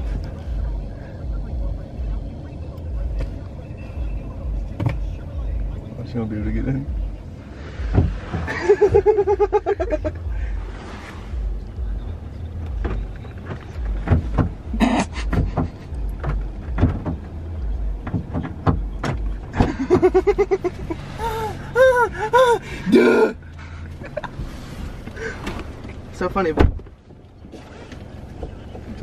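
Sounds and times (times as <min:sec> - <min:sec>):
car engine idling: 0:00.0 - 0:29.0
man laughing: 0:08.5 - 0:10.2, 0:14.7 - 0:16.0, 0:19.6 - 0:24.4
clicks and knocks: 0:12.6 - 0:17.4.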